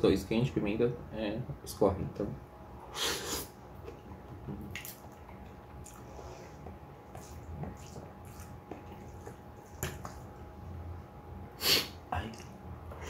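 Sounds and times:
wet chewing and smacking: 3.8 - 10.5.

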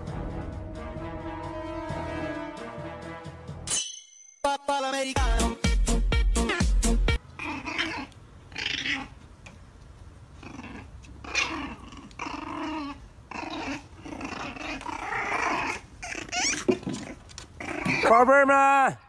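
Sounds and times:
puppies growling: 7.2 - 9.2, 10.3 - 18.1.

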